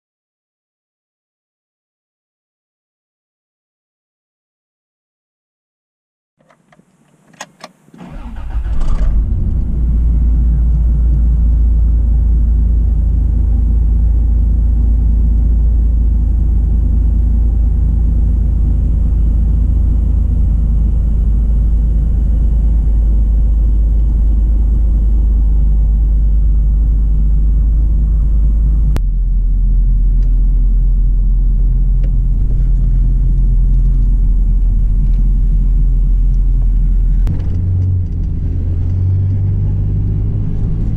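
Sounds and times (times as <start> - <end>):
clicks: 6.4 - 8.0
engine cranking and idling: 7.4 - 39.4.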